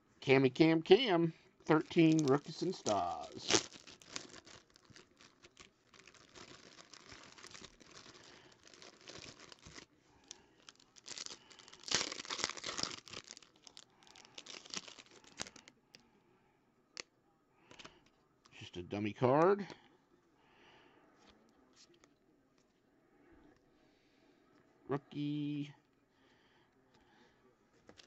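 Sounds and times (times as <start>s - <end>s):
foil wrapper crinkling and tearing: 1.7s - 15.7s.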